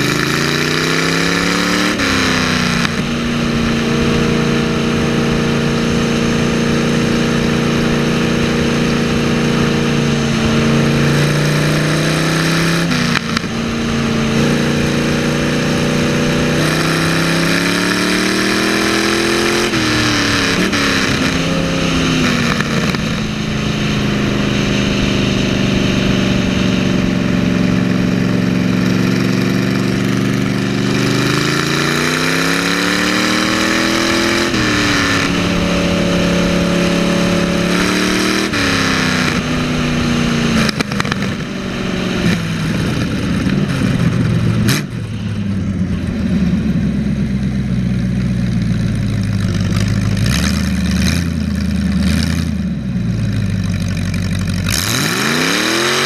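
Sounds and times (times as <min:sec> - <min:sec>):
lawn mower engine running: 0:00.0 - 0:56.0.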